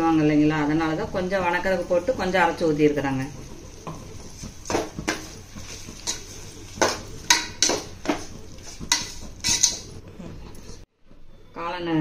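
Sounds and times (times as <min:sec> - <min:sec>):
spoon scraping and knocking pan: 0:03.7 - 0:10.0.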